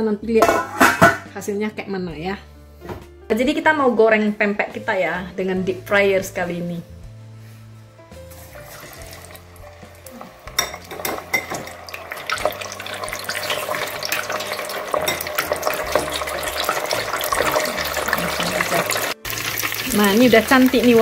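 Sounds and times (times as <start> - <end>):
food deep-frying in oil: 8.4 - 21.0.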